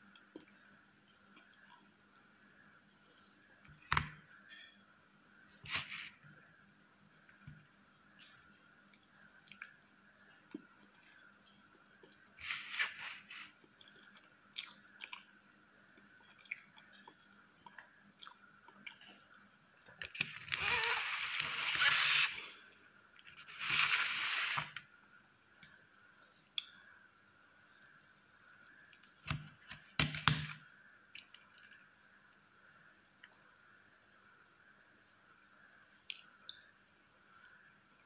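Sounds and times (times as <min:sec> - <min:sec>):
rustling noise: 0:05.6 - 0:06.2, 0:12.4 - 0:13.6, 0:23.3 - 0:24.8
chewing and smacking: 0:13.6 - 0:19.2.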